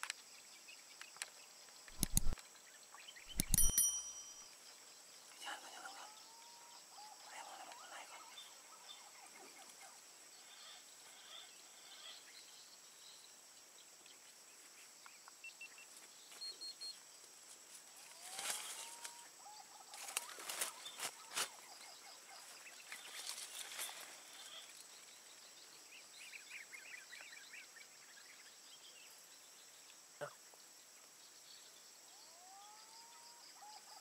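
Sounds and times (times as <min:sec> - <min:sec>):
small bird chirps: 0:01.8 - 0:12.6
sharp clicks: 0:01.9 - 0:02.4, 0:03.3 - 0:04.0.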